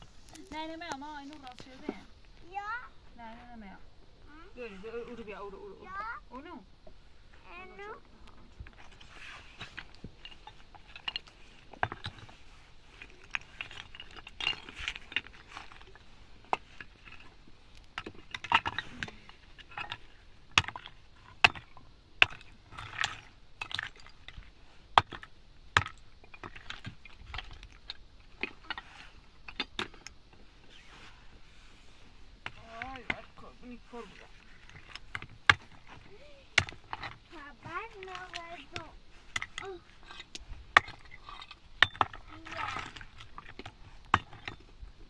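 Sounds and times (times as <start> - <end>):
hard objects clinking and knocking: 8.6 - 12.4, 13.0 - 17.3, 34.6 - 44.7.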